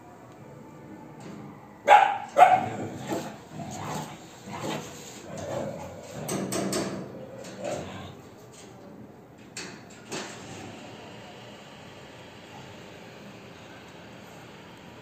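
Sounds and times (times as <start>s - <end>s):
dogs barking: 1.8s - 4.9s.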